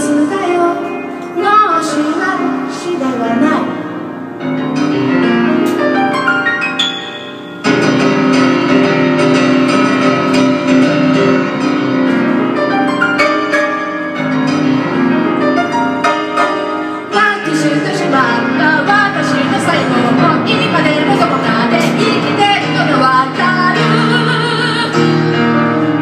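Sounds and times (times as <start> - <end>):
grand piano playing: 0.0 - 26.0.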